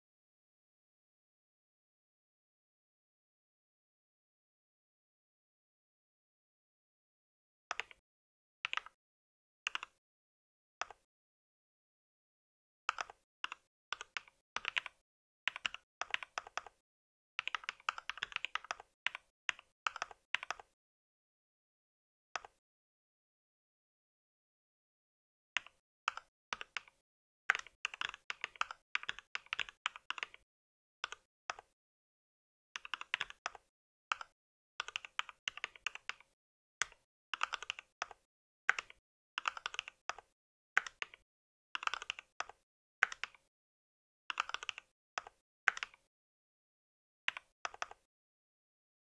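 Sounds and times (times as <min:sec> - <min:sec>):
mechanical keyboard typing: 0:08.7 - 0:09.0, 0:12.9 - 0:16.8, 0:17.4 - 0:20.7, 0:25.6 - 0:30.4, 0:32.8 - 0:41.2, 0:41.8 - 0:43.5, 0:44.3 - 0:46.1, 0:47.3 - 0:48.1.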